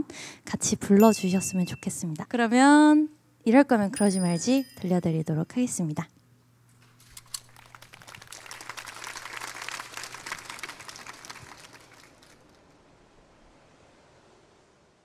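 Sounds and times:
audience clapping: 7.3 - 12.7.

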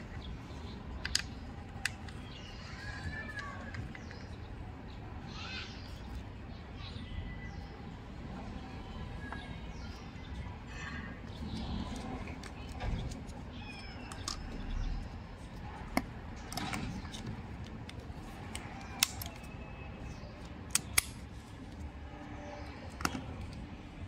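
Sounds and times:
sharp clicks: 20.7 - 21.2.

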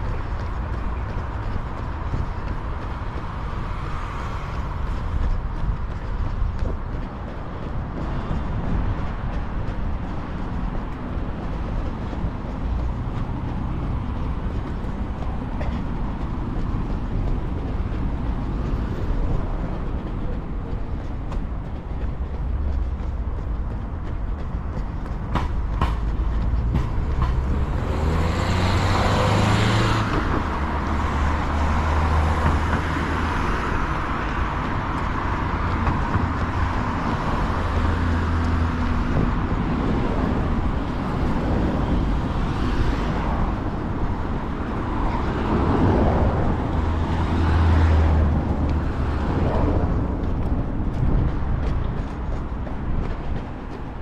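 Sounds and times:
vehicles passing with engine rumble: 0.0 - 54.0.

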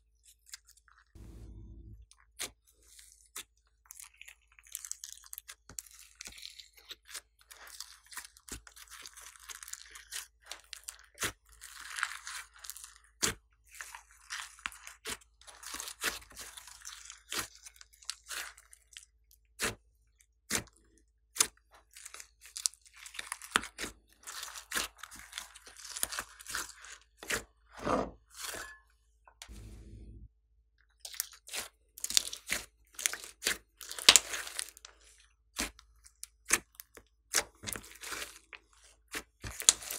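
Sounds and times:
slime crackling and popping: 31.1 - 34.9.

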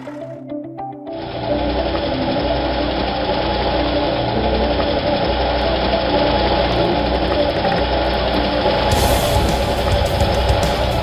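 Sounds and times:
heavy truck engine rumbling: 1.2 - 11.0.

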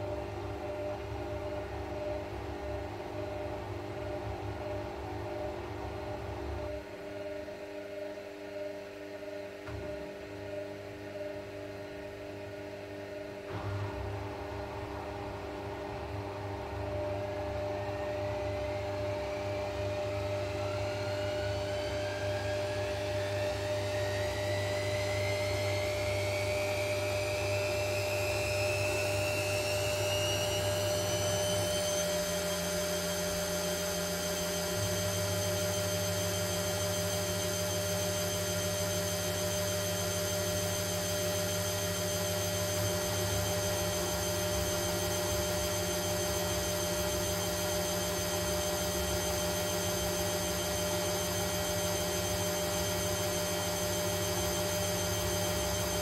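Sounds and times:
washing machine motor whine: 0.0 - 56.0.

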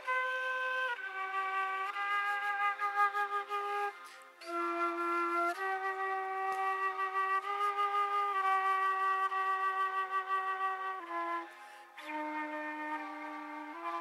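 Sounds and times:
flute playing slow melody: 0.0 - 14.0.

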